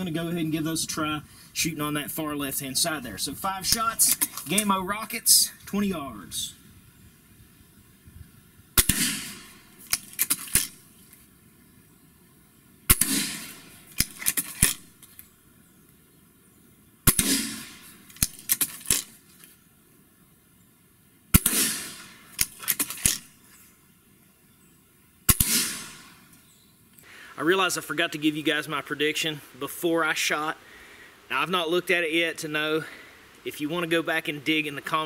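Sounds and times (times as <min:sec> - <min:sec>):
break barrel clicks: 0:03.6 - 0:04.7, 0:08.8 - 0:10.8, 0:12.9 - 0:15.2, 0:17.1 - 0:19.2, 0:21.4 - 0:23.3
air rifle shots: 0:08.8 - 0:10.8, 0:12.9 - 0:15.0, 0:17.0 - 0:19.2, 0:21.3 - 0:23.4, 0:25.3 - 0:26.3.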